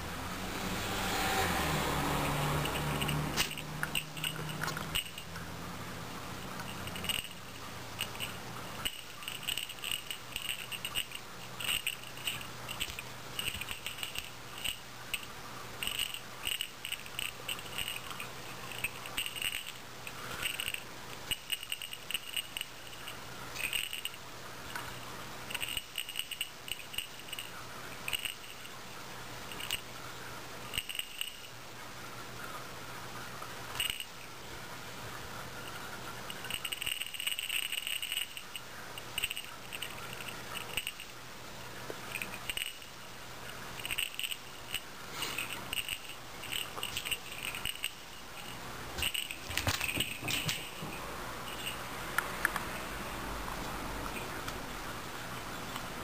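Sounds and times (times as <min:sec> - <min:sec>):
small jingle bell jingling: 0:02.0 - 0:05.6, 0:06.4 - 0:24.2, 0:24.9 - 0:28.8, 0:30.7 - 0:31.6, 0:33.7 - 0:34.2, 0:36.2 - 0:41.2, 0:42.0 - 0:51.9.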